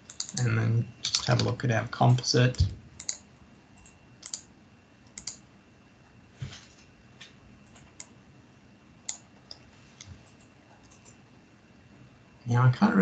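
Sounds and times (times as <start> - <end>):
keyboard keystrokes: 0.1 - 1.5, 2.5 - 3.2, 3.8 - 4.5, 5.1 - 5.4
mouse clicks: 3.8 - 4.5, 5.1 - 5.4.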